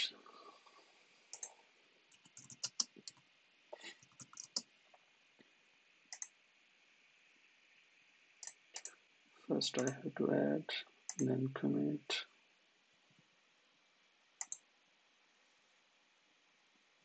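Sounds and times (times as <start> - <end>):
mouse clicks: 1.3 - 1.5, 2.1 - 3.2, 6.1 - 6.3, 11.1 - 11.3, 14.4 - 14.6
faint keyboard typing: 1.3 - 5.0, 6.1 - 6.4, 8.4 - 9.0, 9.7 - 10.1, 11.1 - 11.4, 14.4 - 14.7.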